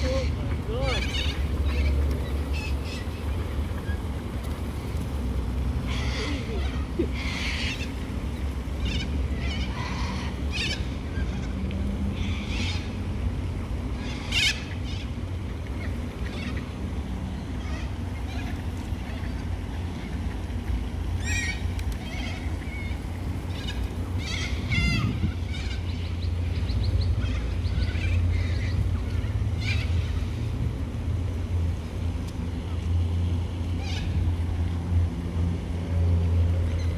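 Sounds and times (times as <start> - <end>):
cockatoos calling: 0.0 - 4.3, 5.8 - 13.0, 17.5 - 30.4
steady low rumble: 0.0 - 36.9.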